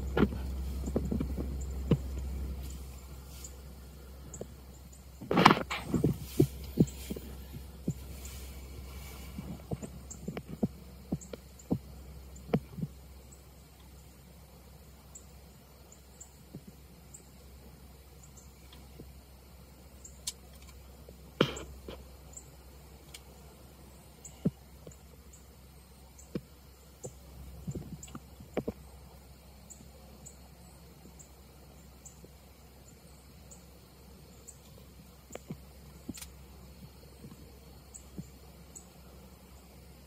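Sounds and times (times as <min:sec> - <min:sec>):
insect chirping: 0:00.0 - 0:40.0.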